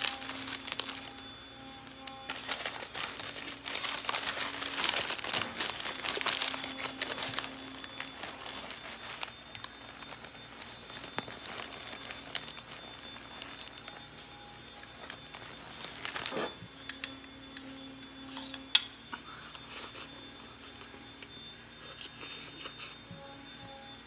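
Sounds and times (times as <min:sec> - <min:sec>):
paper wrapper crinkling: 0:00.0 - 0:16.6.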